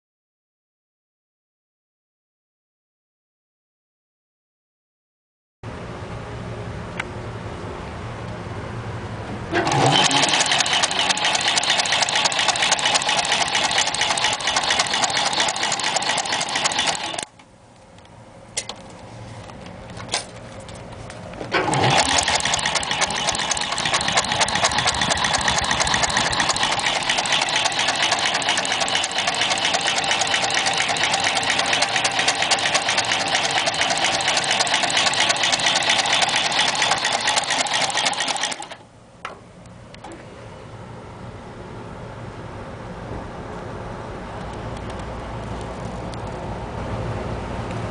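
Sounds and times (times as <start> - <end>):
sewing machine stitching: 9.5 - 17.3, 21.5 - 38.8.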